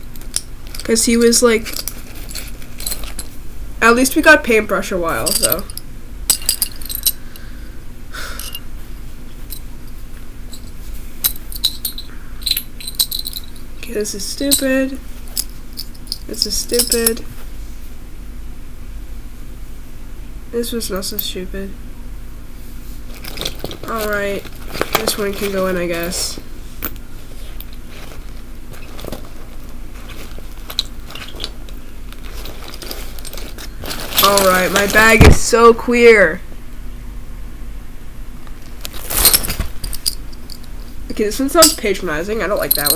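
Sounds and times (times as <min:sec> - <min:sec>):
bag rustle: 0:00.0 - 0:03.4, 0:22.7 - 0:35.3, 0:38.8 - 0:41.0
metal pins and charms clinking: 0:00.0 - 0:03.4, 0:05.1 - 0:07.4, 0:08.4 - 0:08.7, 0:09.5 - 0:09.7, 0:10.5 - 0:17.3, 0:23.1 - 0:35.4, 0:38.7 - 0:42.9
low hum: 0:00.0 - 0:42.9
fabric backpack crinkling: 0:00.1 - 0:03.4, 0:23.0 - 0:26.2, 0:27.1 - 0:35.2, 0:38.9 - 0:40.8.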